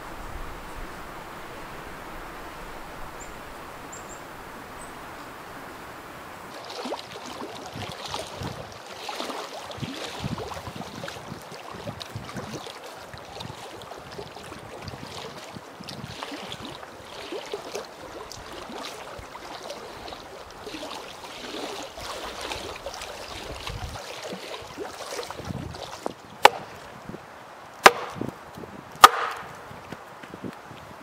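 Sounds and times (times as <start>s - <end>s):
lake water lapping: 0.0s - 28.3s
wind: 0.0s - 31.0s
hatchet chopping wood: 26.4s - 26.7s, 27.8s - 28.3s, 29.0s - 29.6s.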